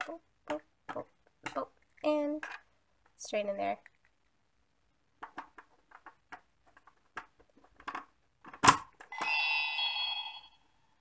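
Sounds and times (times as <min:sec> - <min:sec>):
small plastic clicks and rattles: 0:00.0 - 0:03.2, 0:05.2 - 0:09.1
electronic toy chime: 0:09.1 - 0:10.9.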